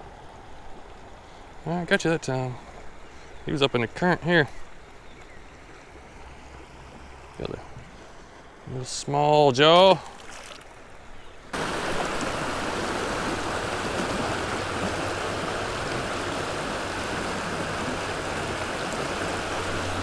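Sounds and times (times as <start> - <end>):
creek water rushing over rocks: 9.5 - 20.0.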